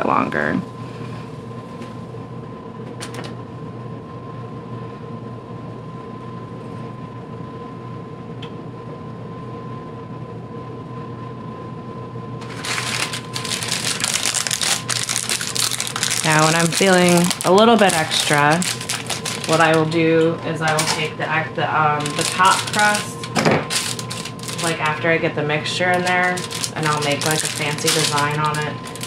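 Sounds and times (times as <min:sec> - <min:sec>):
steady background hum: 0:00.0 - 0:29.0
plastic wrapping crinkling: 0:12.4 - 0:20.0, 0:20.6 - 0:21.2, 0:22.0 - 0:25.1, 0:25.8 - 0:29.0.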